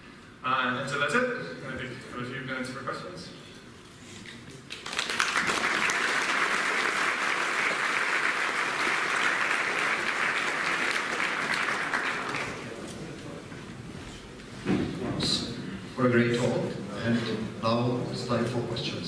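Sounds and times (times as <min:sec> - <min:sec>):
audience applauding: 0:04.7 - 0:12.8.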